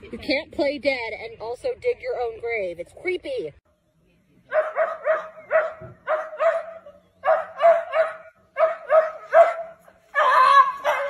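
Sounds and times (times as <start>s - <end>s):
small dog barking: 4.5s - 11.0s.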